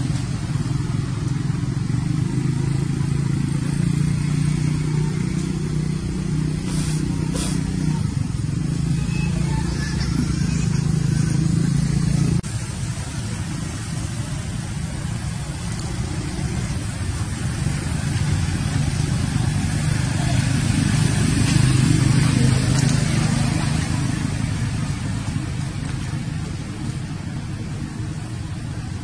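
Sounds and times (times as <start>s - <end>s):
vehicle engine rumble: 0.0s - 29.0s
faint hiss: 4.9s - 8.7s.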